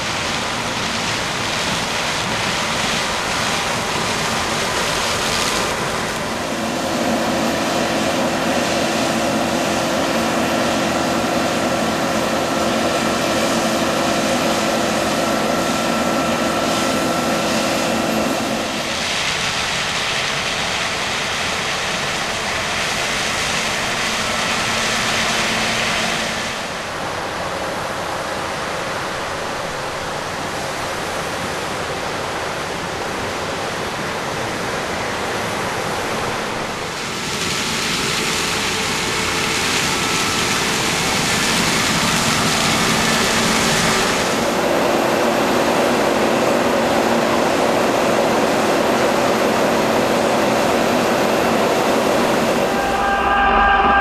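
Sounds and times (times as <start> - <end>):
mill machine hum: 49.5 - 54.0.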